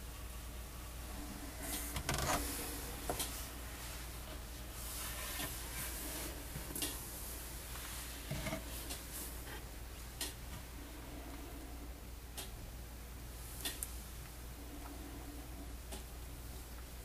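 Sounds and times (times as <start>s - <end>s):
steady low hum: 0.0s - 17.0s
rubbing noises: 1.5s - 6.7s.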